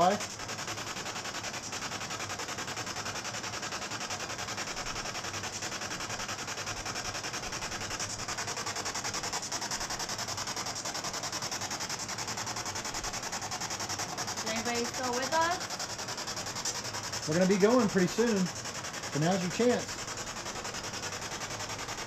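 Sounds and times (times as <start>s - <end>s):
pulsing radio static: 12.2s - 22.0s.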